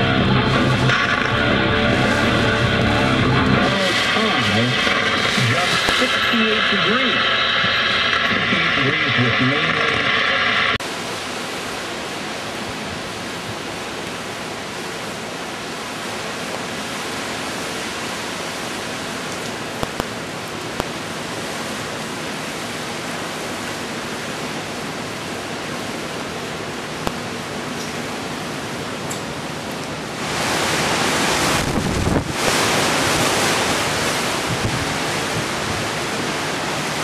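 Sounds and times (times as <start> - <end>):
wind and rain rushing: 0.0 - 37.0
sharp clicks: 19.8 - 20.1.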